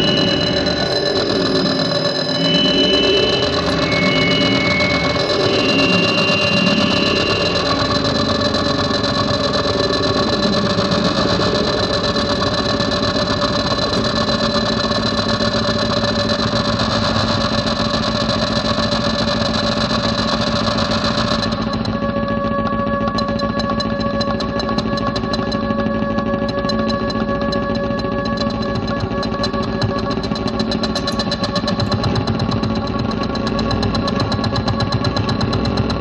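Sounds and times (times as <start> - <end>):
drone music: 0.0 - 17.8, 28.6 - 32.6.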